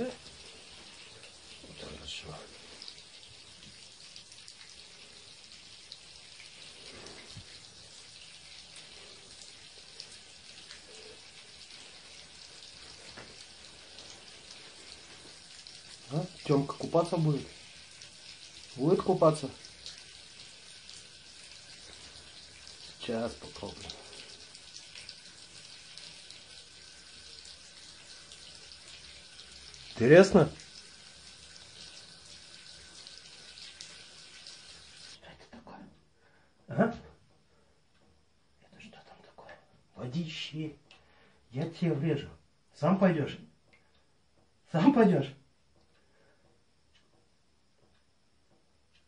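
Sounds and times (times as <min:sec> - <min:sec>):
tap water running into bathtub: 0:00.0 - 0:35.2.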